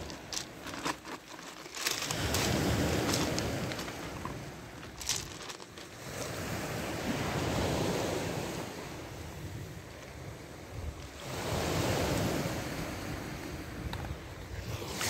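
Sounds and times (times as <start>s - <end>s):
sea waves washing onto shore: 0.0s - 13.9s.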